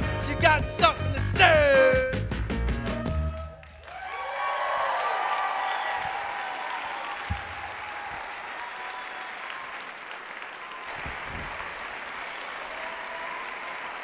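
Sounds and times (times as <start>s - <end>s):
audience applauding: 3.3s - 14.0s.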